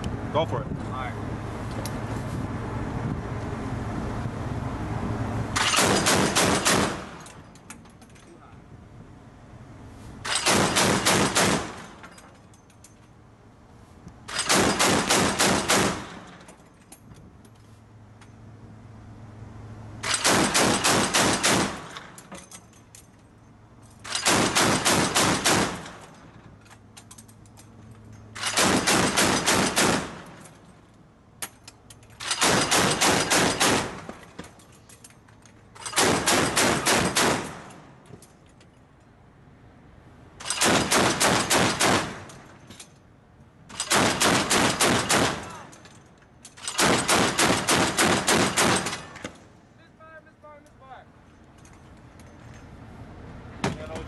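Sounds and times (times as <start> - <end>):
chain gun firing bursts: 5.6 - 7.3, 10.3 - 12.2, 14.3 - 16.5, 20.0 - 22.3, 24.0 - 26.2, 28.4 - 30.6, 32.2 - 34.2, 35.8 - 37.8, 40.4 - 42.5, 43.7 - 45.7, 46.6 - 49.4.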